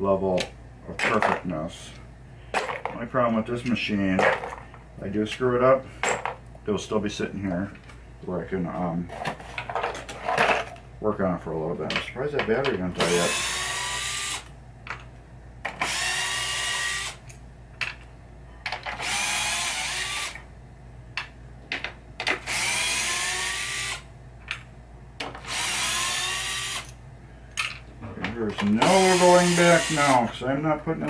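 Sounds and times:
electric screwdriver whining: 13.0s - 14.5s, 15.8s - 17.2s, 19.0s - 20.4s, 22.4s - 24.0s, 25.4s - 27.0s, 28.8s - 30.2s.

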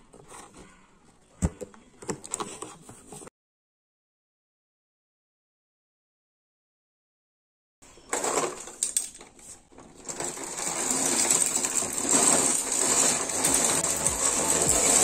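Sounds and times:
plastic pens clattering on stone floor: 8.0s - 15.0s.

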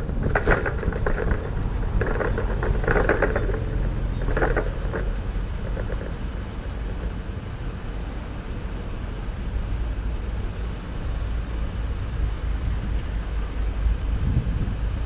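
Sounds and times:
short bursts of clatter: 0.0s - 7.2s
bus engine and road rumble: 0.0s - 15.0s.

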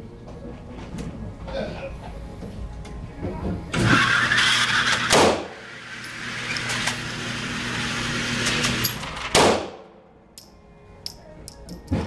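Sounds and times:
pistol shots with echo: 9.4s - 9.8s.

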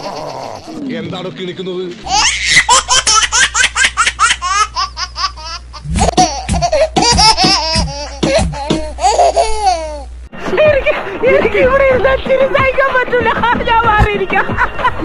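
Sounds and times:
child laughing shrilly: 0.0s - 0.8s, 2.1s - 10.1s
steady low hum: 0.0s - 15.0s
man belly laughing: 2.2s - 9.8s.

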